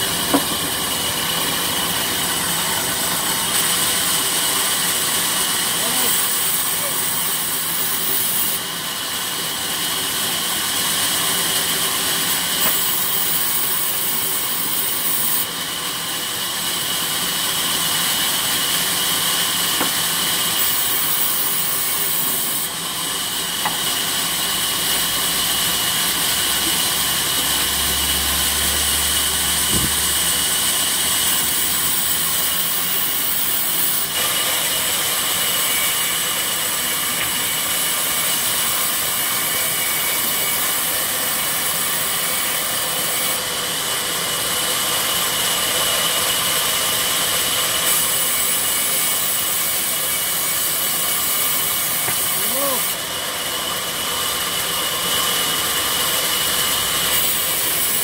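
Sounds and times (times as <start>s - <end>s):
band saw slicing wood: 0.0s - 8.7s, 9.8s - 15.6s, 16.5s - 43.5s, 44.5s - 53.2s, 54.4s - 58.0s.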